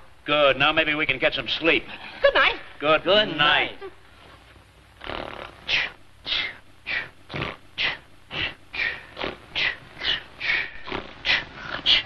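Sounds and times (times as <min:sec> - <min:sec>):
men snoring: 0:05.0 - 0:06.0.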